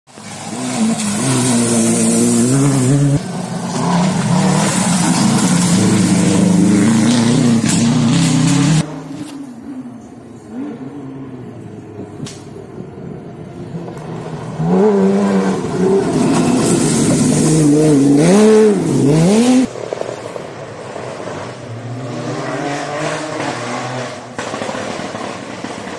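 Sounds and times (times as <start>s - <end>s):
rally car engine revving: 0.2s - 9.8s, 13.8s - 19.7s, 21.0s - 25.9s.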